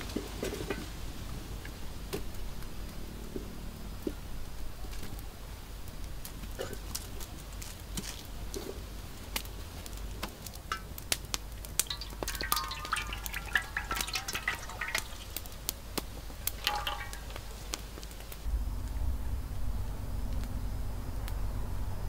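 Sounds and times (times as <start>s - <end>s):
wood fire crackling and popping: 4.4s - 18.5s
oil pouring into a wok: 11.6s - 17.8s.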